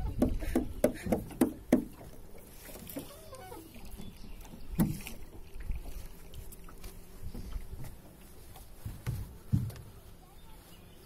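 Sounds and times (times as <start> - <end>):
low knocks against boat hull: 0.0 - 2.1, 8.8 - 9.9
water splashing: 0.0 - 9.7.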